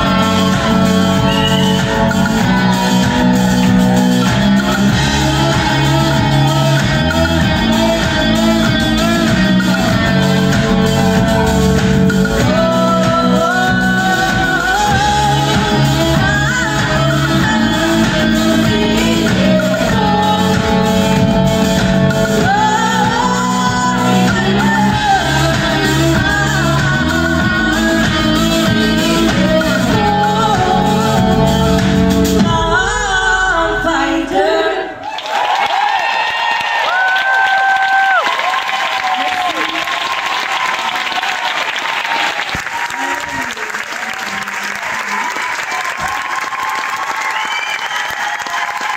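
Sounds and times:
live rock band playing: 0.0s - 34.6s
woman singing: 0.0s - 35.0s.

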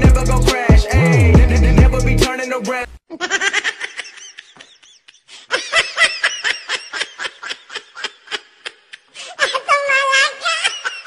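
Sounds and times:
laughter in rhythmic bursts: 3.1s - 9.2s.

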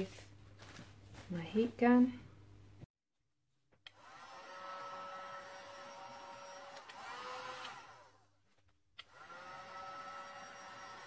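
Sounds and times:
heat gun blowing with fan whine: 3.9s - 8.2s.

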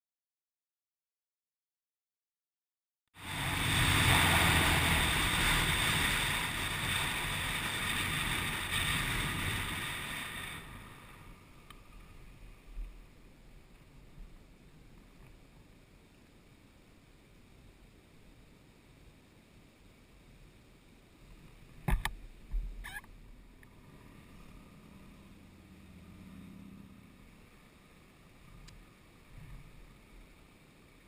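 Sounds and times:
wind and road rush: 3.2s - 19.2s, 19.8s - 31.0s.

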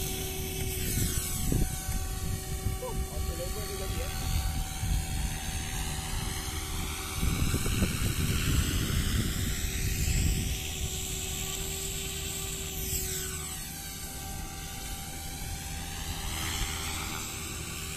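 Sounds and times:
wind buffeting microphone: 0.0s - 11.6s
helicopter rotors whining: 0.0s - 17.9s.

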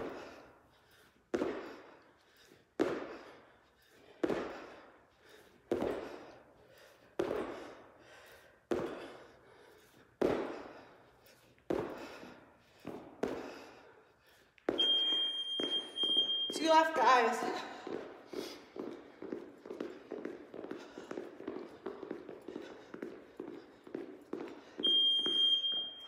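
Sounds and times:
feet landing on gym floor: 1.3s - 1.8s, 2.8s - 3.4s, 10.2s - 10.8s.

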